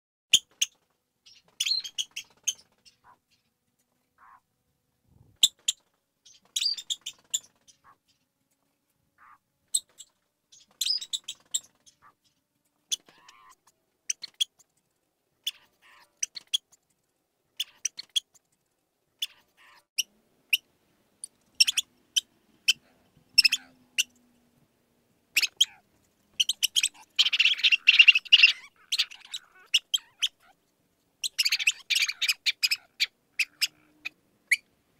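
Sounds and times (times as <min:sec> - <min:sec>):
mouse squeaking: 0:00.3 - 0:03.4, 0:05.4 - 0:08.2, 0:09.2 - 0:12.2, 0:12.9 - 0:14.7, 0:15.4 - 0:16.8, 0:17.6 - 0:18.5, 0:19.2 - 0:20.6, 0:21.6 - 0:24.2, 0:25.3 - 0:25.8, 0:26.4 - 0:34.7.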